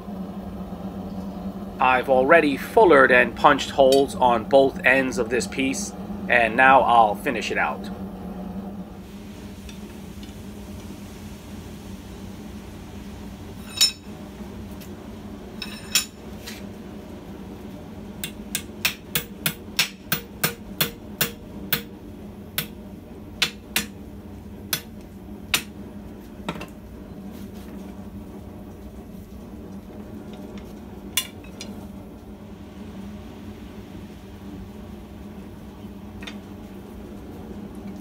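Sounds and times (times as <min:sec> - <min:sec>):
steady low hum: 0:00.0 - 0:38.0
hammer striking hot steel: 0:13.6 - 0:14.2, 0:18.2 - 0:22.8, 0:23.4 - 0:24.0, 0:24.7 - 0:25.8.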